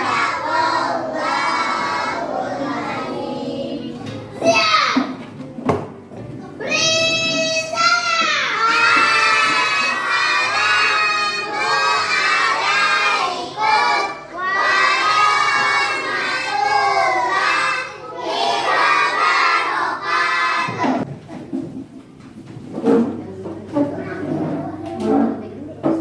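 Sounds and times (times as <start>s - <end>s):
children singing in unison: 0.0s - 4.0s, 8.5s - 21.0s.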